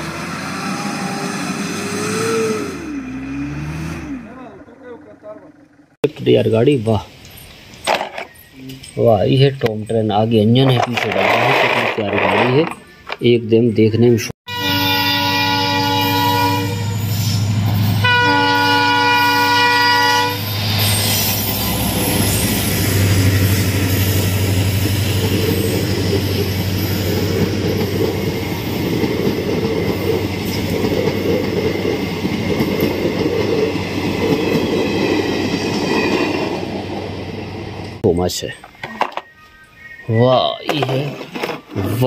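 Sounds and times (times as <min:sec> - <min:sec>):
train horn blasts: 0:14.5 - 0:17.2, 0:18.0 - 0:20.6
train wheels clattering over rails: 0:23.4 - 0:37.0.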